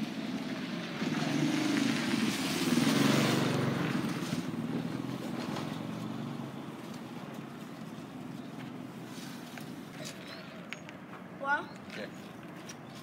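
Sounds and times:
vehicle engine passing by: 0:00.1 - 0:06.8.

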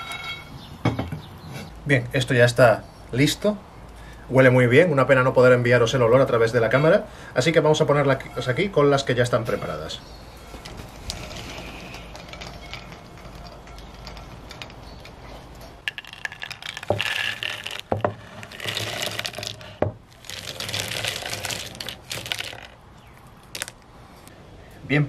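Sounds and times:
beans rattling on ceramic plate: 0:10.6 - 0:22.8.

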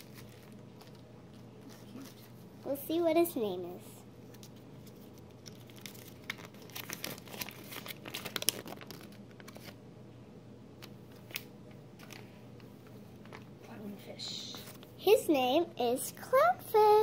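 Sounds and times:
packaging crinkling: 0:00.0 - 0:02.4, 0:04.3 - 0:09.8, 0:11.1 - 0:12.3.

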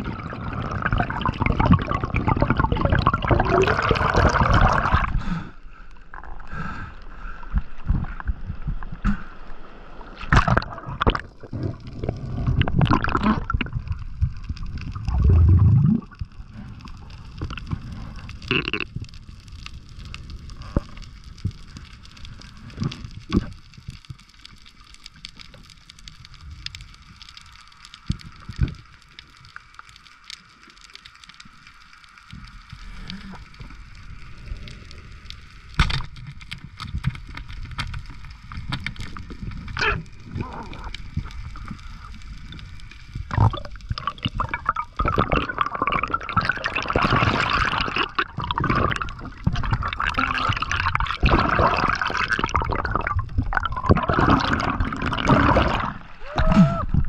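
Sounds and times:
water rushing and gurgling: 0:00.0 - 0:21.3, 0:32.2 - 0:57.0
underwater clicks and knocks: 0:35.8 - 0:40.0.

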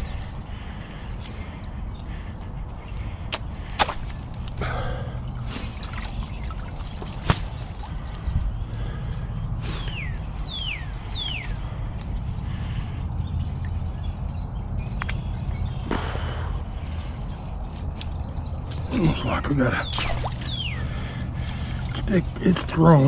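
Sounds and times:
stick snapping: 0:07.2 - 0:07.6, 0:19.9 - 0:20.4.

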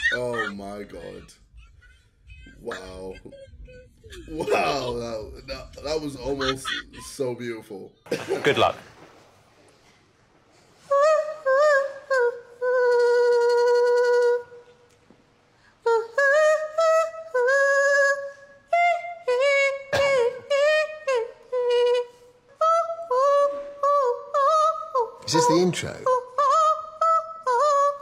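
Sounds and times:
woman singing alone: 0:10.8 - 0:14.7, 0:15.8 - 0:25.3, 0:26.1 - 0:28.0.

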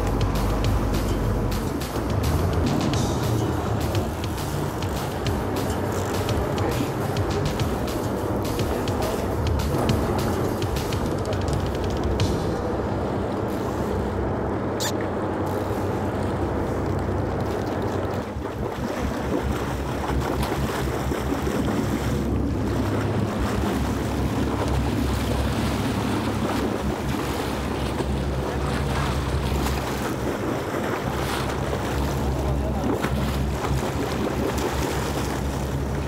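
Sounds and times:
boat engine running: 0:00.0 - 0:36.0
water sloshing against hull: 0:00.0 - 0:36.0
brief high squeak: 0:14.8 - 0:15.0
wind buffeting microphone: 0:15.4 - 0:36.0.

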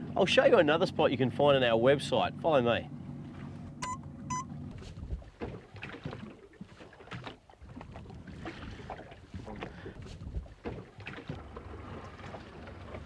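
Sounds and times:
low engine hum: 0:00.0 - 0:13.0
wind: 0:00.0 - 0:13.0
water slapping against hull: 0:02.9 - 0:13.0
short electronic beeps: 0:03.8 - 0:04.5.

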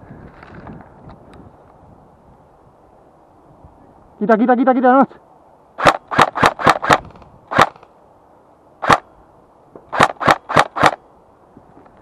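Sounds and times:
airsoft rifle shots: 0:05.8 - 0:07.9, 0:08.8 - 0:09.1, 0:09.9 - 0:11.0.

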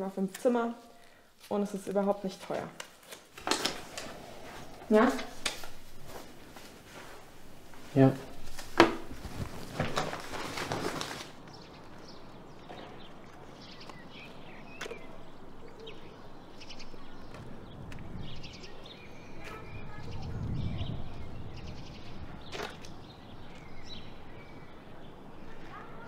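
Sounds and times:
songbirds chirping: 0:00.0 - 0:26.0
duvet rustling: 0:03.0 - 0:12.1.

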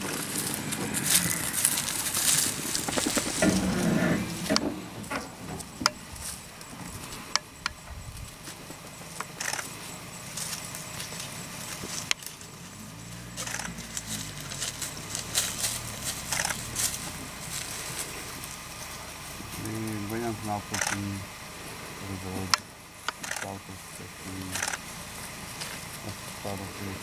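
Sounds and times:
low steady hum: 0:00.0 - 0:27.0
outdoor bush ambience: 0:00.0 - 0:27.0
sharp clicks and crackles: 0:08.8 - 0:09.8, 0:13.4 - 0:17.0, 0:20.7 - 0:21.1.

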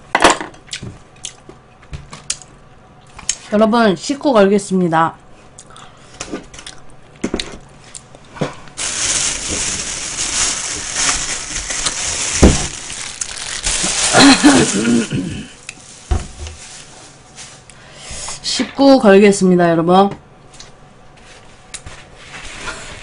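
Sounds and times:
close-up rustling and crinkling: 0:08.8 - 0:14.8, 0:15.7 - 0:17.7.

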